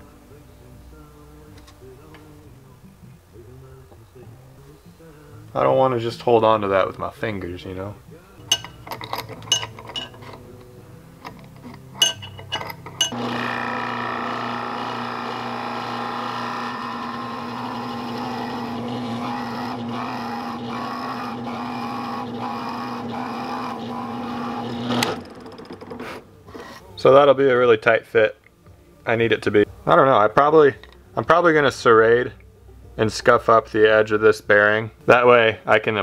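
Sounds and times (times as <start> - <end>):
metal clamp clicks: 11.2 - 13.1
drill press motor humming: 12.8 - 26.3
drill bit cutting wood: 13.1 - 26.1.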